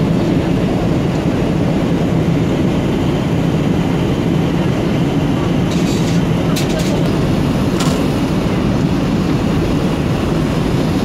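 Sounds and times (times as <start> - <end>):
airliner cabin engine rumble: 0.0 - 11.0.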